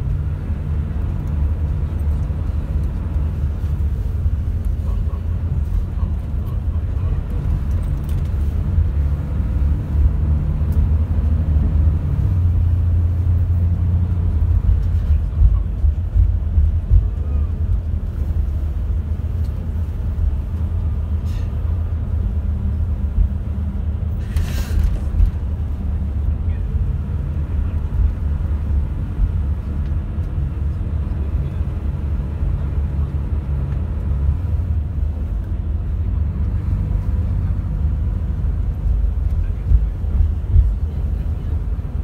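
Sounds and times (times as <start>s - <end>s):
coach engine rumble: 0.0s - 42.0s
brief hiss: 24.2s - 25.0s.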